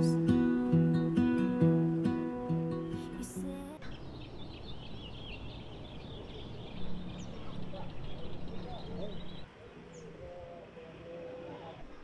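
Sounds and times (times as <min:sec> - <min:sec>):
small birds chirping: 0:01.5 - 0:10.2.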